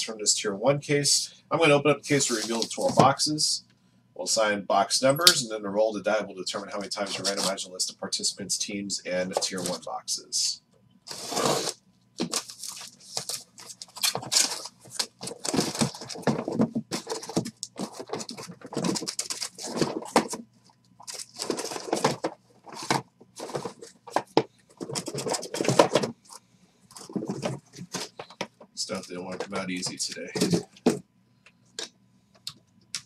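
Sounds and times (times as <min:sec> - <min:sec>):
cardboard scraping and tearing: 0:02.2 - 0:03.0, 0:07.0 - 0:07.6, 0:11.1 - 0:20.4, 0:21.0 - 0:26.1
box cutter slitting tape: 0:11.1 - 0:12.5.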